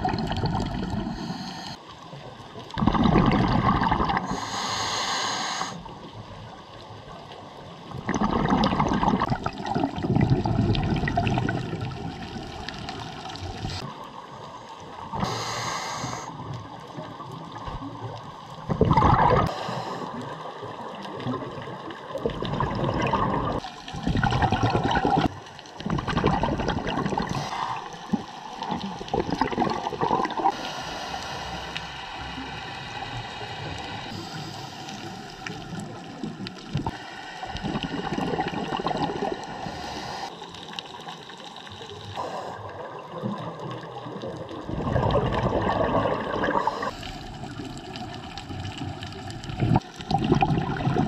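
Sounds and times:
regulator exhale bubbling: 0:00.0 - 0:01.8, 0:02.7 - 0:05.9, 0:08.0 - 0:13.9, 0:18.6 - 0:20.2, 0:22.1 - 0:40.4, 0:42.1 - 0:51.0.

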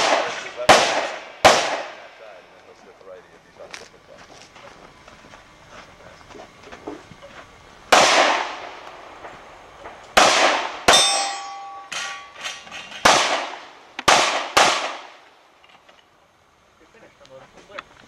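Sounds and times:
gunshots echoing: 0:00.0 - 0:02.4, 0:07.9 - 0:15.3
fainter gunshot cracks: 0:07.9 - 0:08.6
metallic ring: 0:10.9 - 0:13.0.

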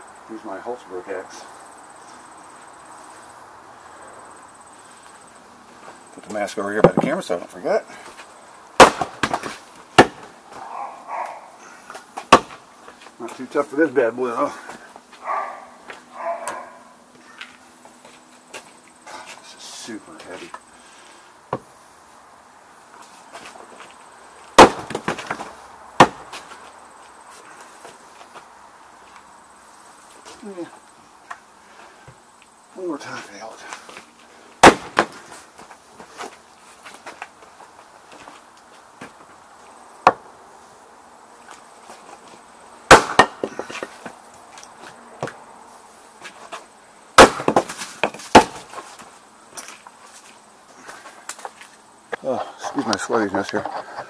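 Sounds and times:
axe splitting firewood: 0:06.8 - 0:07.2, 0:08.8 - 0:10.3, 0:12.2 - 0:12.6, 0:24.6 - 0:26.4, 0:34.6 - 0:35.4, 0:40.0 - 0:40.2, 0:42.9 - 0:43.9, 0:47.2 - 0:48.8.

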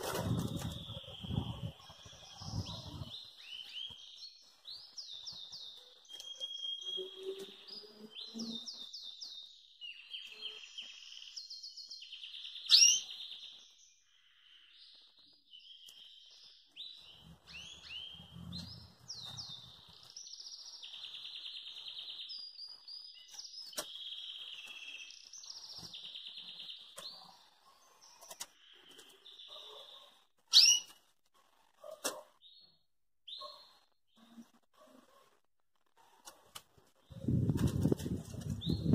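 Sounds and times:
bird singing trills: 0:00.3 - 0:14.0, 0:15.6 - 0:30.9, 0:37.1 - 0:38.9.

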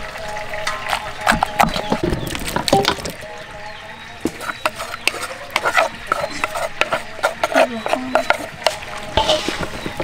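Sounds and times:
spoon scraping in mortar: 0:04.3 - 0:10.0.

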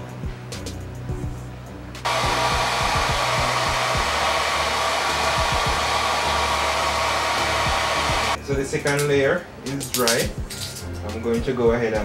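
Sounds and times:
hair dryer blowing with whine: 0:02.1 - 0:08.4.

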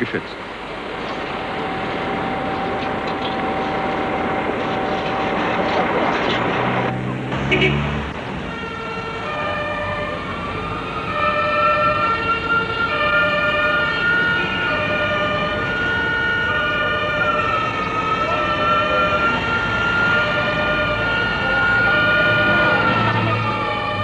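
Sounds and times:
street traffic: 0:00.0 - 0:24.0
fire engine siren wailing: 0:00.8 - 0:24.0
two-tone siren: 0:01.3 - 0:05.8, 0:06.6 - 0:24.0.

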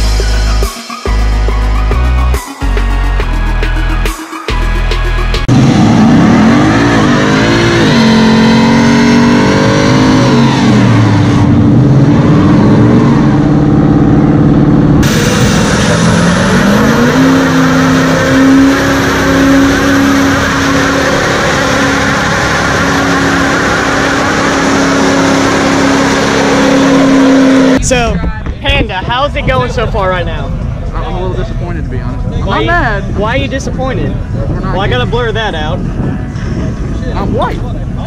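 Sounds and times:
car engine revving: 0:00.0 - 0:27.8
pickup engine at high pitch: 0:00.0 - 0:27.8.

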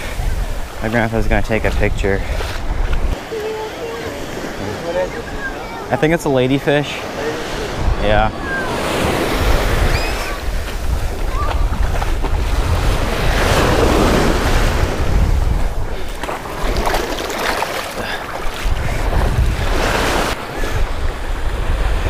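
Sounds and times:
wind rumbling on microphone: 0:00.0 - 0:03.6, 0:07.6 - 0:17.4, 0:18.0 - 0:22.0
surf breaking on beach: 0:00.0 - 0:22.0.

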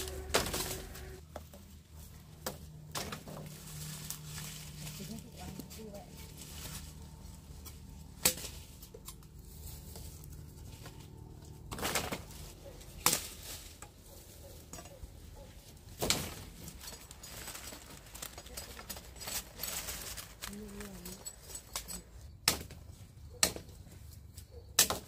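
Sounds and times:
wooden knocks of cane stalks: 0:00.0 - 0:16.8, 0:22.4 - 0:25.0
dry leaves rustling: 0:00.0 - 0:22.1.

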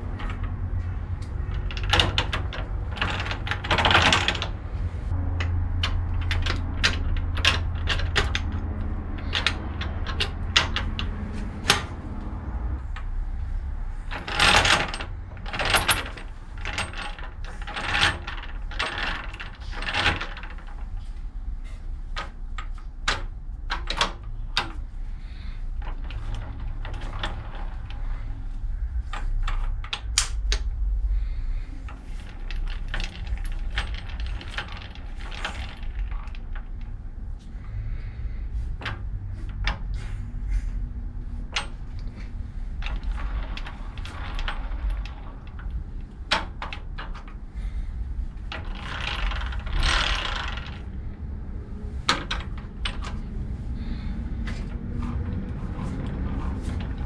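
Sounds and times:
metal gears clinking: 0:00.0 - 0:04.6, 0:05.4 - 0:12.0, 0:14.0 - 0:20.8, 0:31.9 - 0:36.8, 0:41.4 - 0:47.4
metal rattling slides: 0:00.0 - 0:57.0.

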